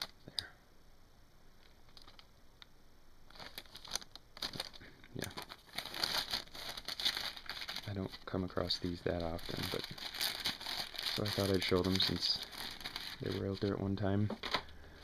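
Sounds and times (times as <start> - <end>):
sleeve crinkling and rustling: 3.3 - 13.7.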